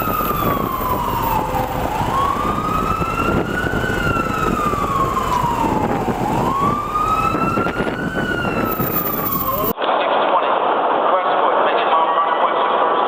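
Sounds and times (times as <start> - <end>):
city street traffic: 0.0 - 9.8
siren wailing: 0.0 - 9.8.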